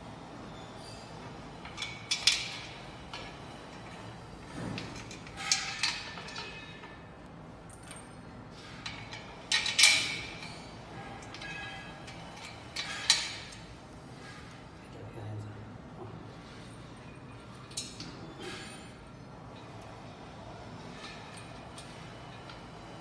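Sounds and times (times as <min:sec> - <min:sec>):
metal parts clinking: 0:01.6 - 0:04.0, 0:04.7 - 0:06.9, 0:08.8 - 0:13.7.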